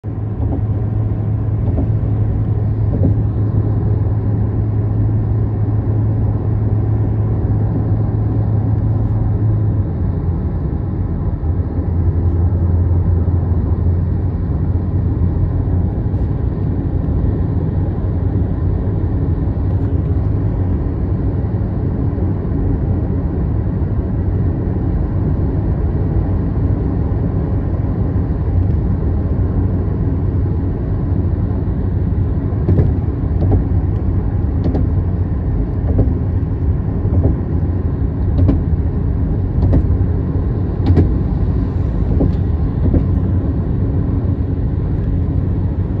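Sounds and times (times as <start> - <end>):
car road and engine rumble: 0.0 - 46.0.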